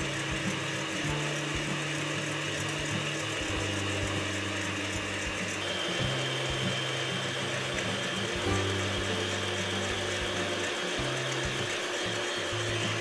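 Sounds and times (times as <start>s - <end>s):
electric hand mixer whipping: 0.0s - 13.0s.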